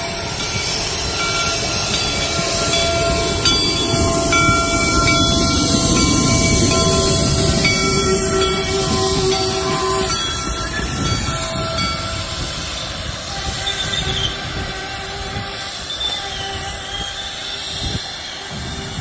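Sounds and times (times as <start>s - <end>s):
steam locomotive wheels rumbling on rail: 0.0s - 19.0s
steam whistle chord: 0.0s - 19.0s.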